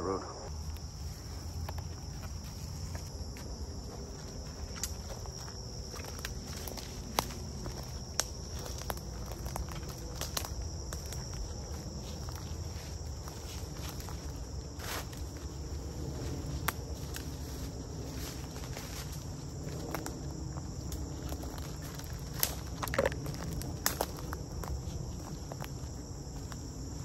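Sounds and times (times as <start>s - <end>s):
insects droning: 0.0s - 27.0s
footsteps through dry leaves: 0.5s - 27.0s
twigs snapping: 4.6s - 12.4s, 20.8s - 26.6s.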